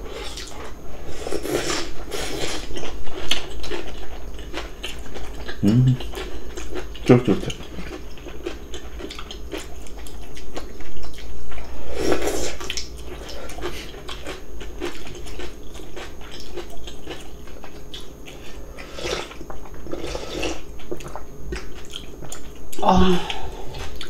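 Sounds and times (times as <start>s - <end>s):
chewing with wet smacks: 2.7s - 11.7s, 12.6s - 18.6s, 20.8s - 22.8s, 23.7s - 24.0s
slurping noodles: 18.5s - 20.6s.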